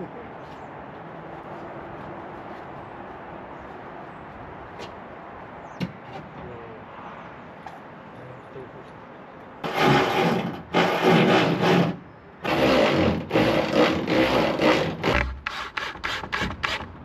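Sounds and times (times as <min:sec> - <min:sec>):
wood scraping: 0:09.6 - 0:17.0.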